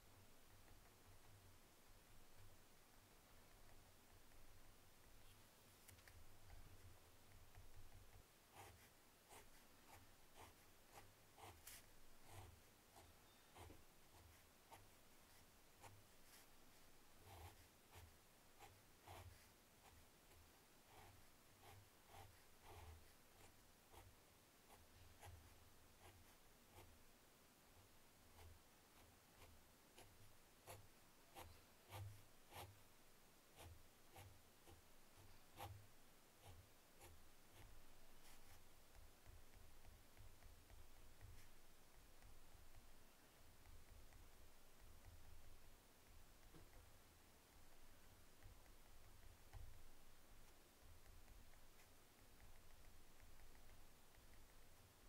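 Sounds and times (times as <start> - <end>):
pen scratching on paper: 7.3 - 16.5, 17.2 - 24.1, 28.3 - 32.8, 36.4 - 41.6.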